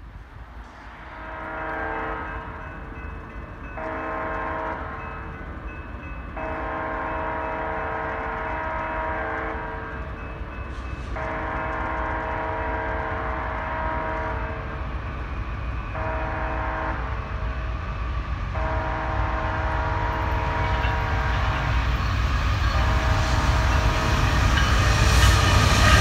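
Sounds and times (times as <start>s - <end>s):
locomotive air horn blasts: 1.1s - 2.3s, 6.5s - 9.6s, 11.2s - 14.6s, 16.0s - 17.2s, 18.6s - 21.6s, 22.6s - 24.3s.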